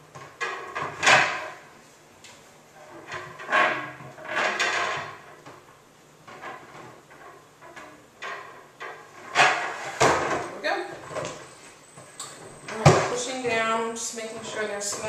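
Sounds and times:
plastic sections scraping and knocking: 0:02.7 - 0:11.5, 0:12.7 - 0:15.0.

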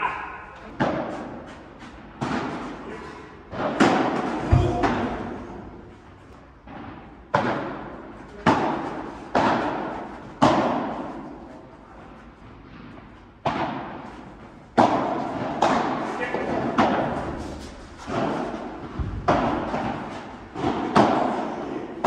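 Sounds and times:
rackets striking ball: 0:00.3 - 0:22.0.

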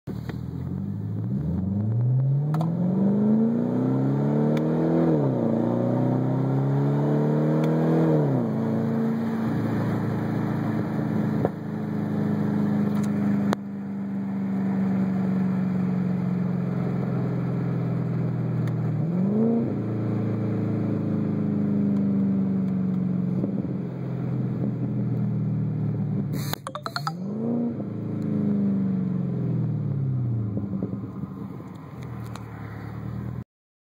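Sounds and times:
car engine accelerating: 0:00.2 - 0:13.6.

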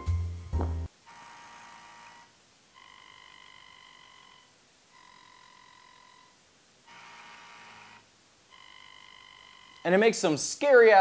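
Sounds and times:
gimbal motors high-pitched tone: 0:01.1 - 0:09.9.

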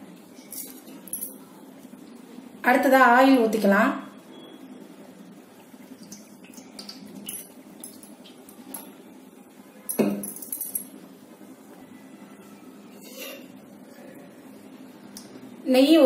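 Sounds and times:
utensils clinking on metal pot: 0:00.4 - 0:01.4.

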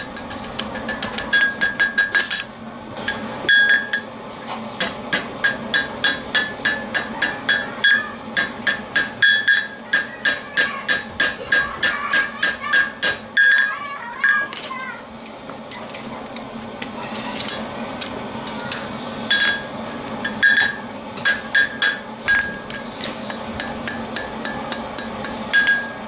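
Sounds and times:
hammer ringing on steel anvil: 0:05.4 - 0:14.4, 0:20.3 - 0:26.0.

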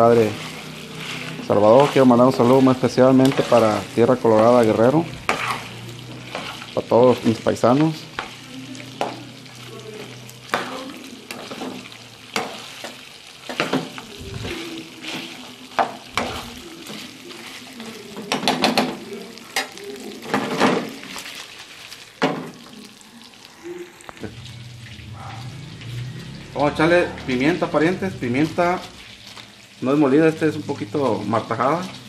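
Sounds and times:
spatula scraping a pan: 0:00.0 - 0:22.8
meat sizzling in oil: 0:00.0 - 0:32.0.

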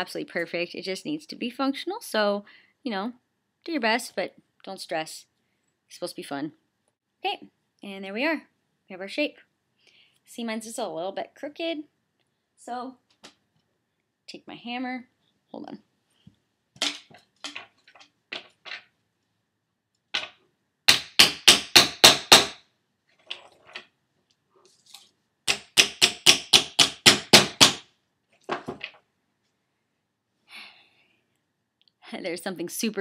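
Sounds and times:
hammer striking copper tube: 0:20.9 - 0:22.6.

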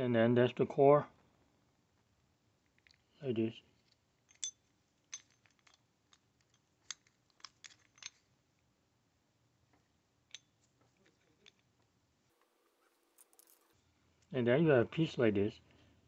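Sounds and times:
metallic clicks of lock parts: 0:02.6 - 0:03.1, 0:03.8 - 0:08.4, 0:10.2 - 0:11.8.

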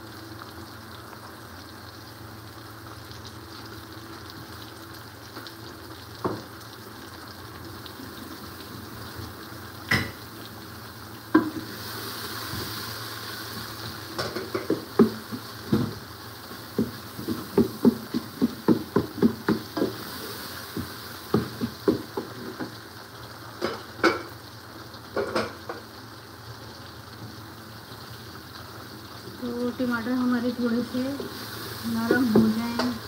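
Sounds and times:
vegetables sizzling in pot: 0:00.0 - 0:33.0
wooden spoon knocking pot: 0:16.8 - 0:20.0, 0:21.3 - 0:22.7.

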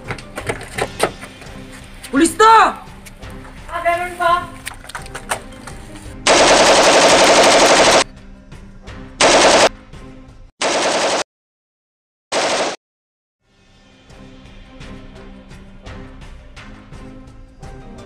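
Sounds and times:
machine-gun bursts: 0:06.3 - 0:08.0, 0:09.2 - 0:09.7, 0:10.6 - 0:11.2, 0:12.3 - 0:12.8.

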